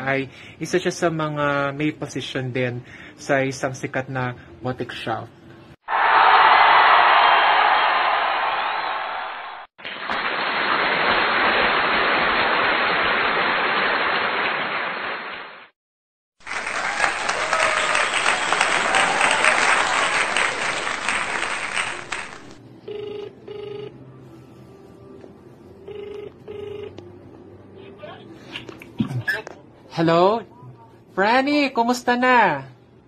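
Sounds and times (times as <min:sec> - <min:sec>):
clapping and cheering: 0:05.9 - 0:15.7, 0:16.4 - 0:22.6
phone ringback tone: 0:22.8 - 0:24.3, 0:25.8 - 0:27.1.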